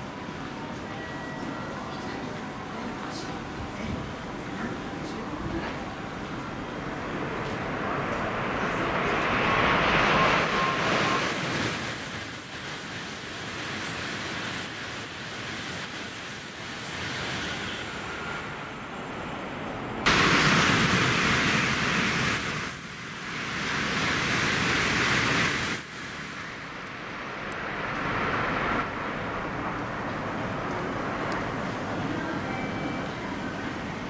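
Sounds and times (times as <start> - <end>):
high-speed train rushing past: 0.0 - 34.0.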